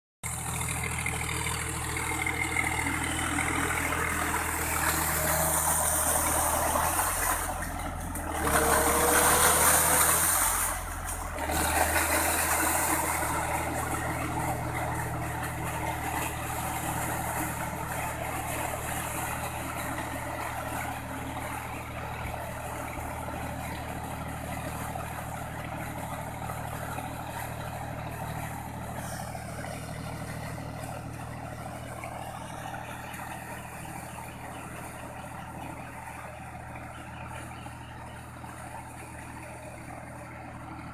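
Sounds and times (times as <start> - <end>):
tractor diesel engine running: 0.2 - 40.9
water and mud splashing: 3.3 - 31.9.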